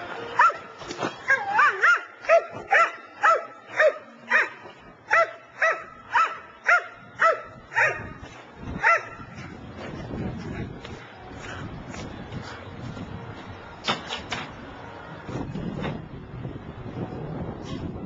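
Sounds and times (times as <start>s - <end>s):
dog barking: 1.6s - 8.1s, 8.8s - 9.2s.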